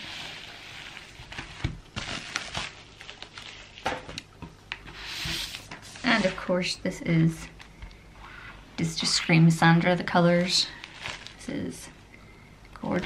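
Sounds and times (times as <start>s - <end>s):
bubble mailer crinkling and rustling: 0.4s - 4.2s, 10.2s - 11.9s.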